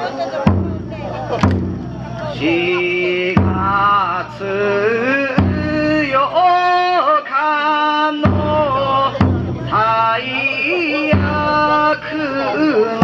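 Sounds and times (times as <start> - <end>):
taiko drum hits: 0.4 - 6.7, 8.2 - 10.3
person chanting: 2.0 - 13.0.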